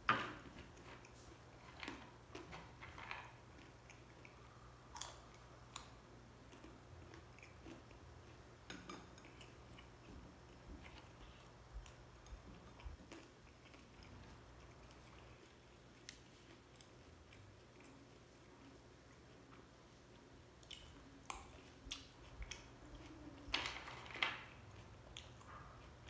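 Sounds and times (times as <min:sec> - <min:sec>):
chewing grapes: 0:00.4 - 0:23.5, 0:24.4 - 0:26.0.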